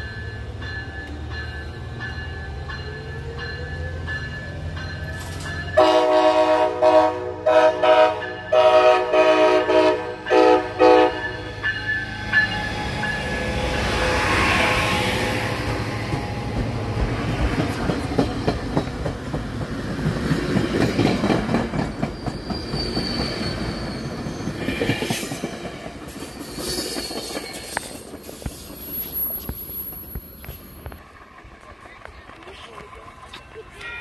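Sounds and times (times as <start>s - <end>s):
high wheel squeals: 21.8s - 25.6s, 26.2s - 31.0s
wheels clicking over rail joints: 24.6s - 34.0s.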